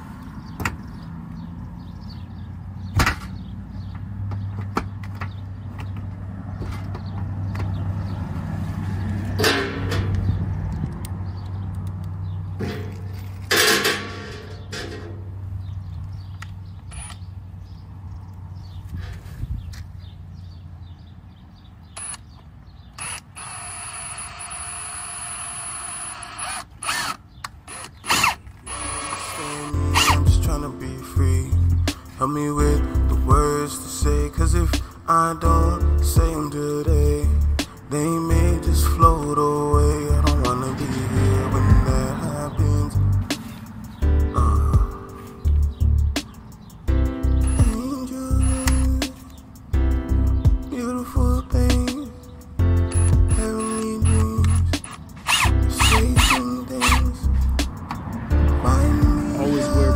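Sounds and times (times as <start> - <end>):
cordless drill driving screws: 16.9 - 17.2, 22.9 - 30.2, 52.9 - 57.1.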